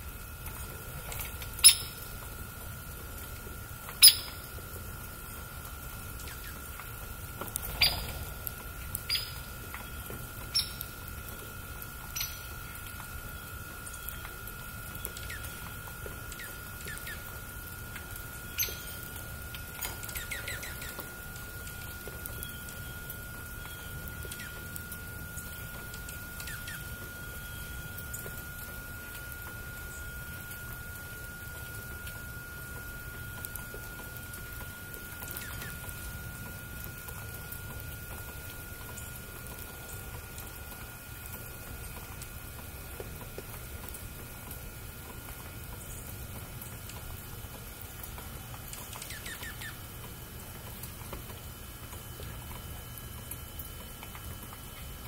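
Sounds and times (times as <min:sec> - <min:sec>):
faint high whine: 0:00.0 - 0:55.0
low rumble and hiss: 0:00.0 - 0:55.0
songbird chip notes: 0:01.5 - 0:02.2, 0:03.8 - 0:04.5, 0:06.1 - 0:40.6, 0:47.8 - 0:49.9.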